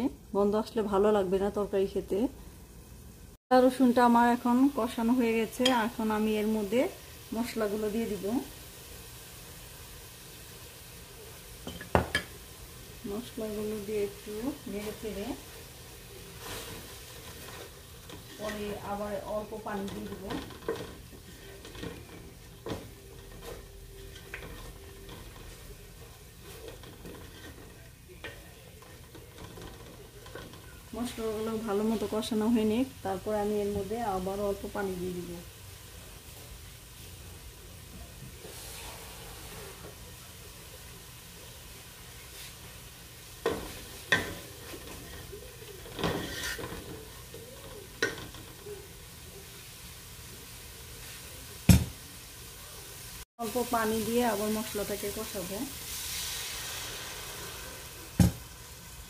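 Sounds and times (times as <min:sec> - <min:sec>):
spices sizzling in oil: 0:00.0 - 0:59.0.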